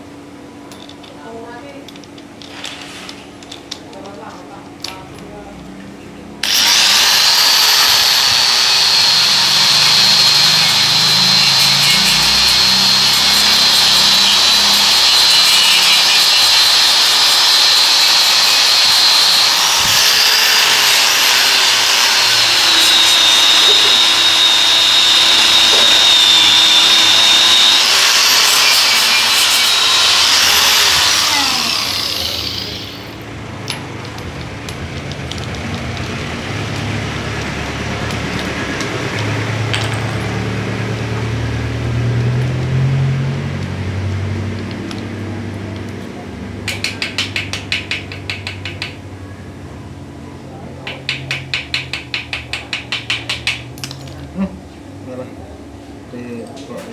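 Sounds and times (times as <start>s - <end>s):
angle grinder grinding steel: 6.4s - 41.0s.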